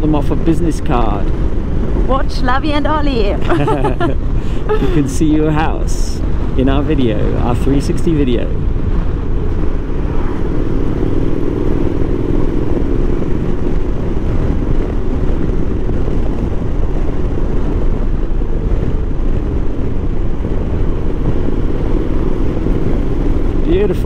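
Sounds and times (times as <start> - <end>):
wind noise on microphone: 0.0 - 24.0
motorcycle engine running: 8.5 - 24.0.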